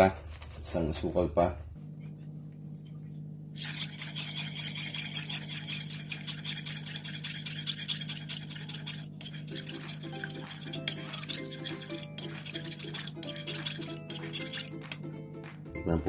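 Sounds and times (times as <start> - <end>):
metal spoon scraping frying pan: 3.6 - 15.0
faint music: 8.6 - 16.0.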